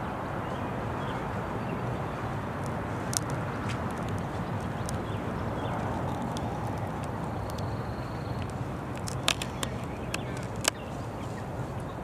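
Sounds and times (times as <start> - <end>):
sharp clicks: 2.6 - 10.8.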